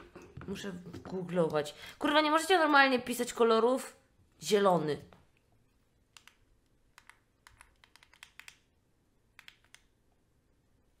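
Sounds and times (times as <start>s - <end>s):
keyboard typing clicks: 6.1s - 8.7s, 9.4s - 9.9s.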